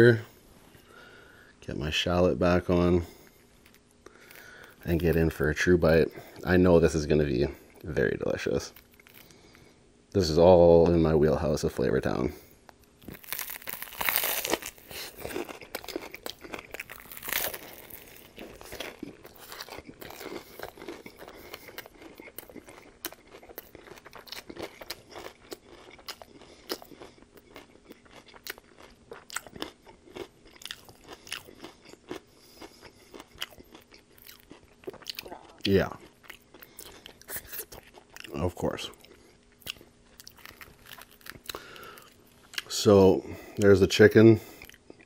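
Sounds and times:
crunchy chewing: 8.7 - 9.7, 12.6 - 42.8.

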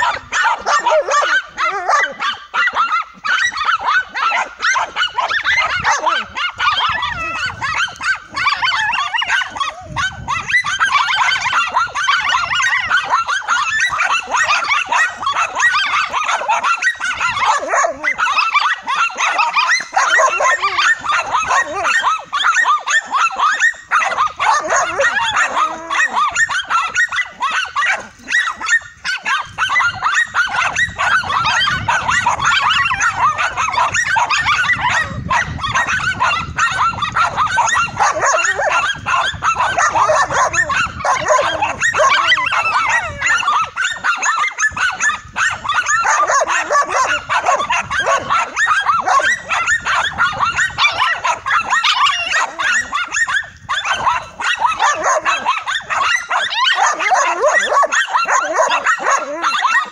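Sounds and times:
dogs barking and yapping: 0.0 - 59.9.

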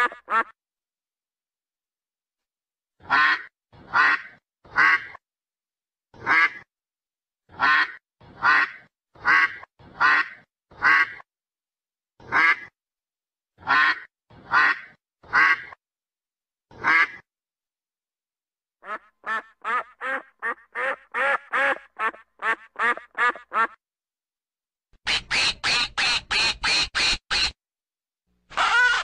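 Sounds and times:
duck quacking: 0.0 - 0.6, 3.0 - 5.2, 6.2 - 6.7, 7.5 - 11.2, 12.2 - 12.7, 13.6 - 15.8, 16.7 - 17.2, 18.8 - 23.8, 25.0 - 27.6, 28.5 - 29.0.

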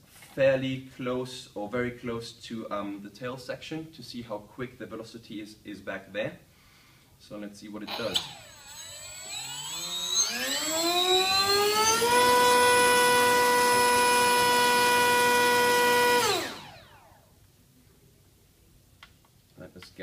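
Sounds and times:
electric motor and propeller whine: 7.9 - 17.3.

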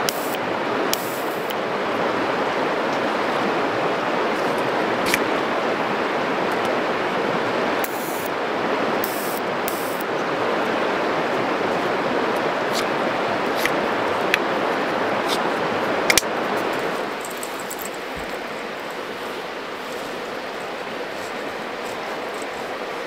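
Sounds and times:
electric lighter clicks: 0.0 - 0.4, 1.0 - 1.6, 9.0 - 10.0
river rushing: 0.0 - 23.0.

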